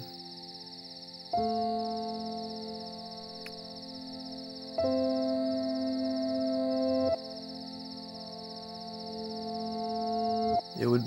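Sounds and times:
ambient film score chord: 0.0 - 11.0
crickets chirring: 0.0 - 11.0.

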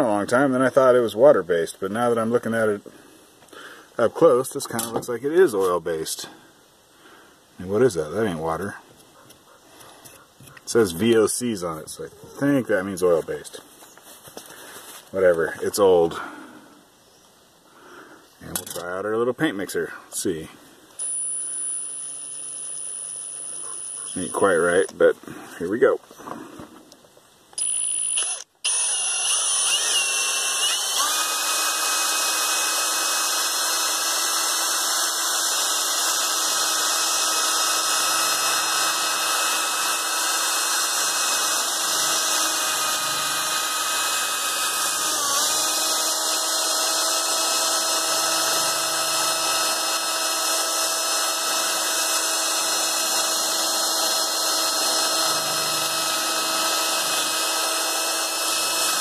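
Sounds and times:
electric drill mixing paint: 21.0 - 24.9, 27.6 - 59.0.

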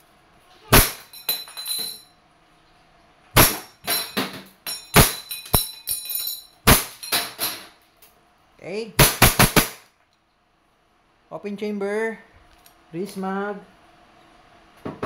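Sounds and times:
airsoft pistol shots: 0.7 - 1.1, 3.4 - 3.7, 6.7 - 7.0, 9.0 - 9.8
metal targets clanking and ringing: 0.7 - 2.1, 3.4 - 7.8.

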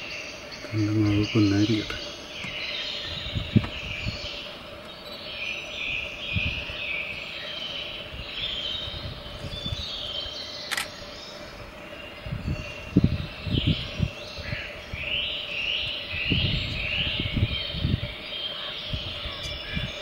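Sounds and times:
birds chirping: 0.0 - 20.0
insects chirping: 0.0 - 20.0
low thumps: 2.4 - 4.2
sharp click: 10.6 - 11.0.

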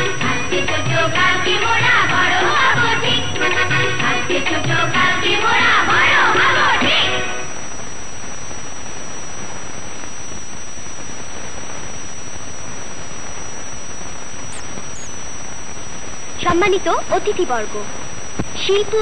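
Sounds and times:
analog soundtrack hiss: 0.0 - 19.0
high-pitched whine: 0.0 - 19.0.

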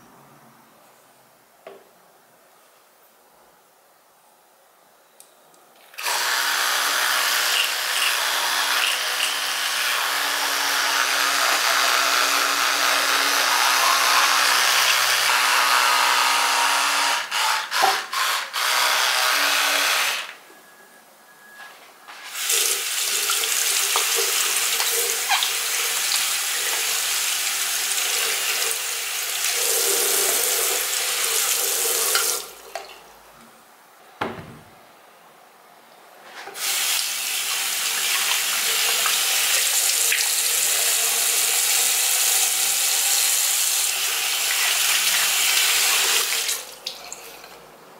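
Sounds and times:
electric toothbrush buzzing: 6.0 - 20.4, 22.3 - 32.3, 36.6 - 46.6.

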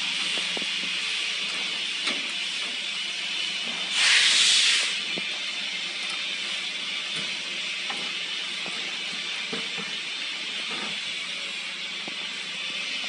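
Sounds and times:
compressed air hissing: 3.8 - 5.2.

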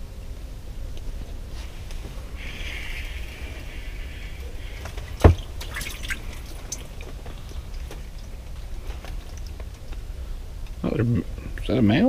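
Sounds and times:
water splashing and dripping: 2.4 - 9.9.

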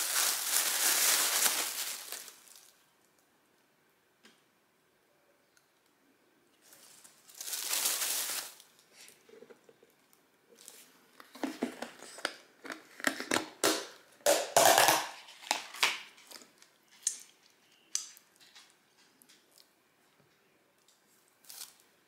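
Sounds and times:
plastic bag rustling: 0.0 - 2.8, 6.6 - 9.5.

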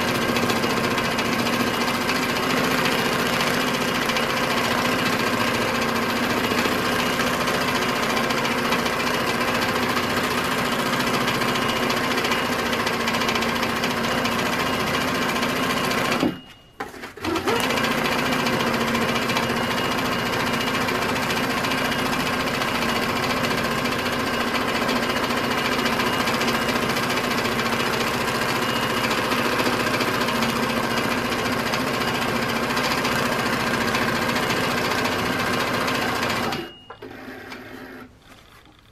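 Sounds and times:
sewing machine needle chatter: 0.0 - 16.3, 17.2 - 38.1.

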